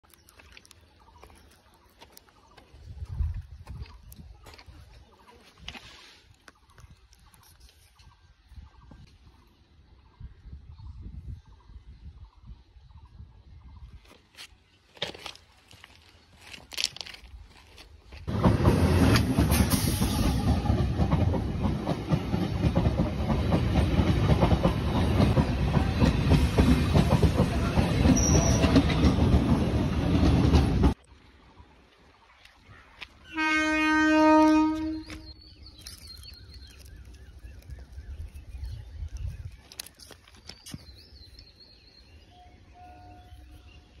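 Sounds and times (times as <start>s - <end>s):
train wheels rumbling on rails: 18.2s - 31.0s
train horn: 33.3s - 35.3s, 42.4s - 43.8s.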